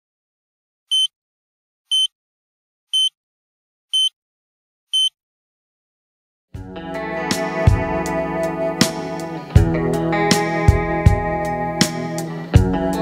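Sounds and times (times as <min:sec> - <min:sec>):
high electronic beeps: 0:00.9 - 0:01.1
music: 0:06.6 - 0:13.0.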